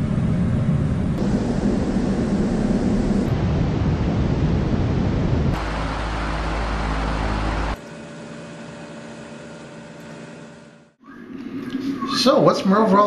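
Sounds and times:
recorded fan noise: 0:00.0 - 0:07.8
low hum: 0:00.0 - 0:08.1.

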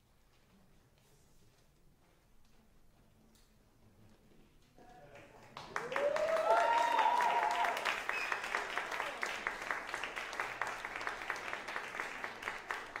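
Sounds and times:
audience applauding: 0:04.9 - 0:13.0
cheering shouts: 0:05.8 - 0:09.3.

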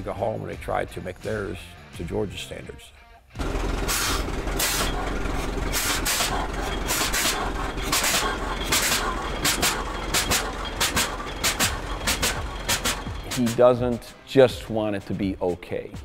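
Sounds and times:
sharp exhaust barks: 0:03.4 - 0:13.8
tractor engine rumbling: 0:03.4 - 0:14.2.

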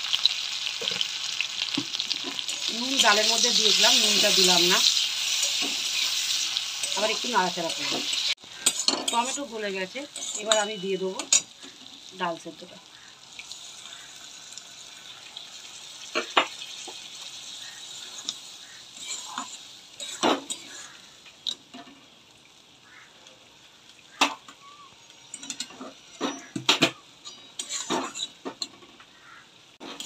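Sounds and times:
food sizzling in hot pan: 0:00.0 - 0:30.0
spatula scraping a pan: 0:01.9 - 0:12.1, 0:16.0 - 0:21.2, 0:25.2 - 0:30.0.

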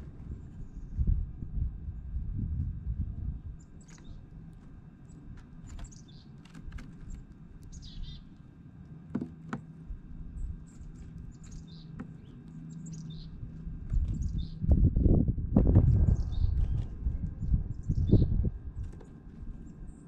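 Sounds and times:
low steady background rumble: 0:00.0 - 0:20.0
small songbirds chirping: 0:03.5 - 0:08.5, 0:10.2 - 0:14.8, 0:16.0 - 0:20.0.

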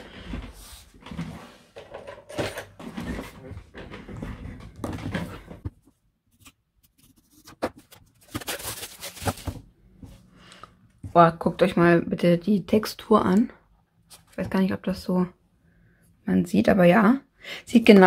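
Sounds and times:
packaging rustling: 0:06.8 - 0:09.7.

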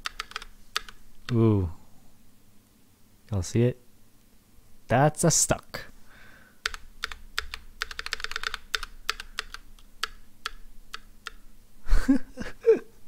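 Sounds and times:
mechanical keyboard keys clacking: 0:00.0 - 0:01.0, 0:06.6 - 0:11.4.

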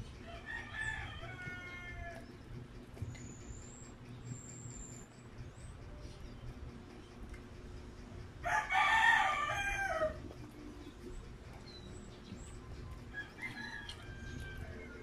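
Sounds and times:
rooster crowing: 0:00.2 - 0:02.3, 0:08.4 - 0:10.3, 0:13.1 - 0:15.0.

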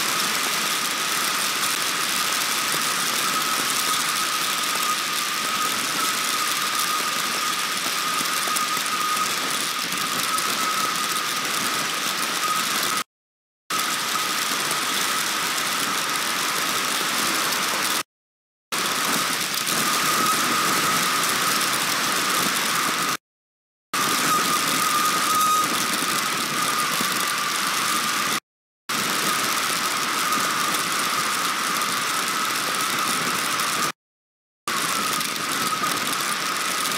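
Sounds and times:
heavy rain on microphone: 0:00.0 - 0:13.1, 0:13.7 - 0:18.0, 0:18.8 - 0:23.2, 0:24.0 - 0:34.0, 0:34.7 - 0:36.9
steady high tone: 0:24.0 - 0:28.4.

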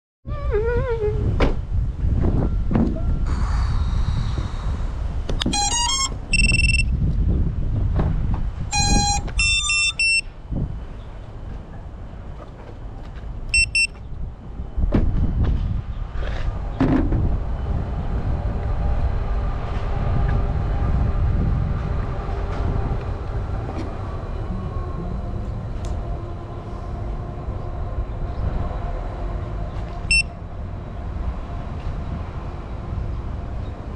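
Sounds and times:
steady low rumble: 0:00.3 - 0:33.9
electronic beep tones: 0:05.4 - 0:06.9, 0:08.8 - 0:10.3, 0:13.6 - 0:14.0, 0:30.1 - 0:30.3.

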